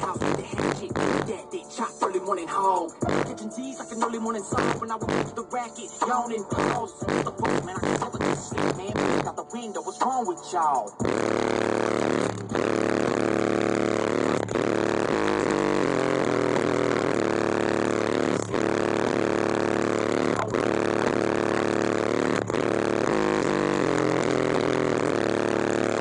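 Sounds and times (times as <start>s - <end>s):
bass-heavy hip hop in car: 0.0s - 26.0s.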